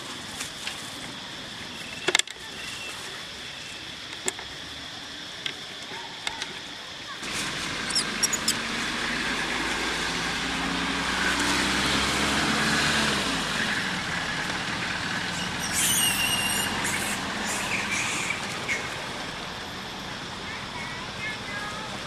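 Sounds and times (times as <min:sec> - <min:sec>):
vehicle engine running: 0:07.2 - 0:15.7
short high squeal: 0:07.9 - 0:08.6, 0:15.4 - 0:16.8.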